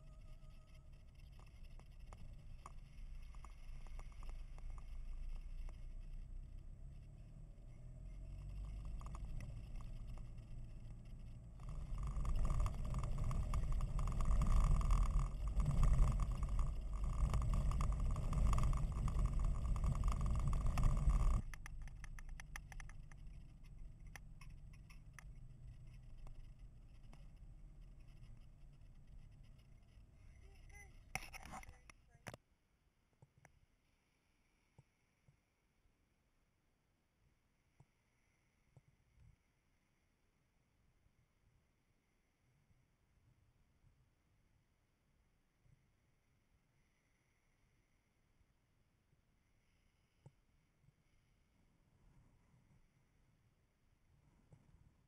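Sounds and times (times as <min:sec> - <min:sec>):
vehicle rumbling on dirt track: 0:00.0 - 0:32.4.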